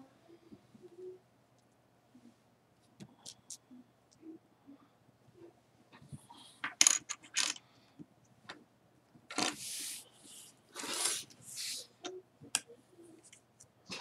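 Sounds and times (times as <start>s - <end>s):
pieces scraping across table: 10.8s - 11.7s.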